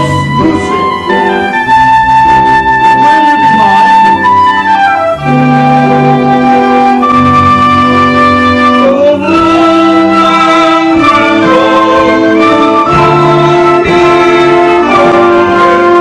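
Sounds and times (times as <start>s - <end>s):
woodwinds holding long chords: 0.0s - 16.0s.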